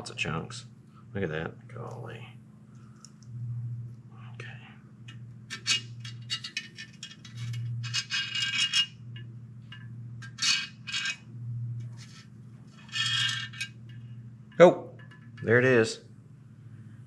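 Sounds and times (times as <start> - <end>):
low steady hum: 0.0 - 17.0
metal scraping: 5.1 - 15.8
metal parts clinking: 5.5 - 15.6.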